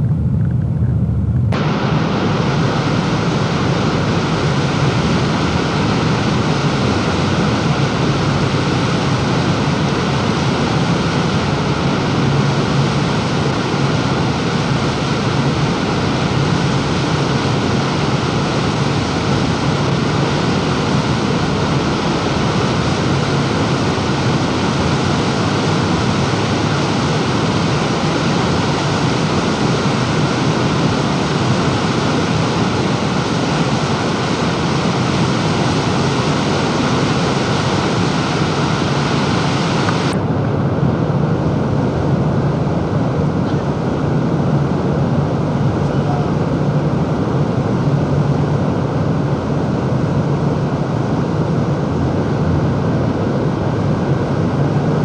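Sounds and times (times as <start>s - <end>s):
low rumble: 0.0s - 5.9s.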